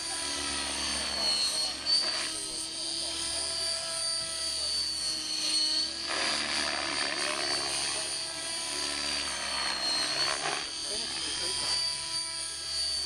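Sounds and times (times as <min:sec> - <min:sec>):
model helicopter whine: 0:00.0 - 0:13.0
rushing blade noise: 0:00.0 - 0:13.0.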